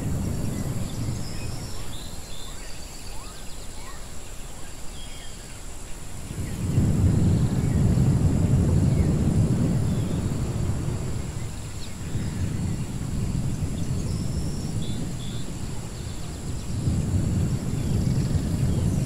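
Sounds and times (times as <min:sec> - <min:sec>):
deep continuous rumble: 0:00.0 - 0:02.4, 0:06.2 - 0:19.0.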